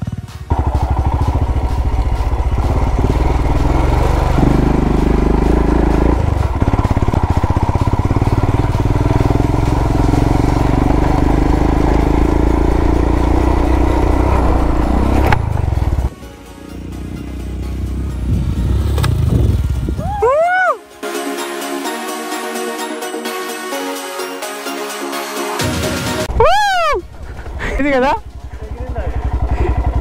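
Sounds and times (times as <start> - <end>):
motorcycle engine off-road: 0.0 - 20.2, 26.2 - 30.0.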